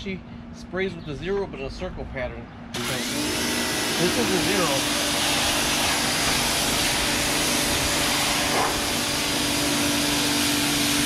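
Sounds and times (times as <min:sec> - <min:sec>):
pressure washer motor hum: 0:02.8 - 0:11.0
water jet hissing on brick: 0:03.6 - 0:11.0.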